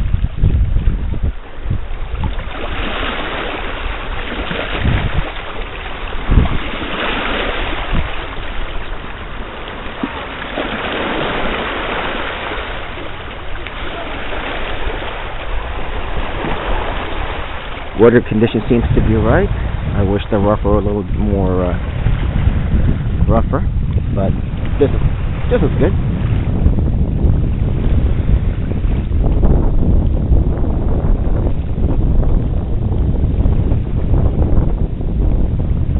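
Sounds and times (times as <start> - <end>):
lake waves lapping at shore: 0.0 - 26.6
wind buffeting microphone: 0.0 - 35.9.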